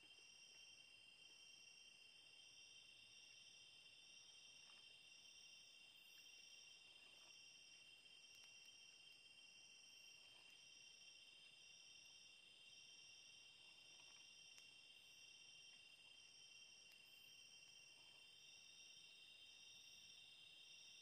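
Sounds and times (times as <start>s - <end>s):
faint ticks: 0.0s - 0.8s, 4.2s - 12.2s, 13.0s - 19.0s
insects trilling: 0.0s - 21.0s.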